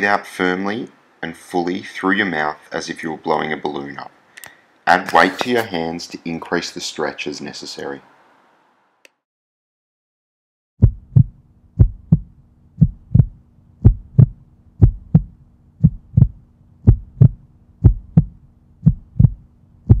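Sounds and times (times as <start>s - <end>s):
heartbeat thumps: 10.8s - 20.0s
low steady hum: 10.8s - 20.0s.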